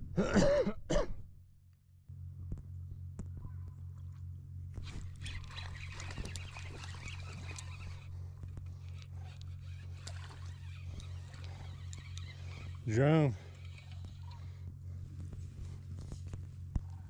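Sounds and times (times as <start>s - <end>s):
scattered clicks and rustle: 2.4s - 17.0s
fishing reel whirring: 4.8s - 14.7s.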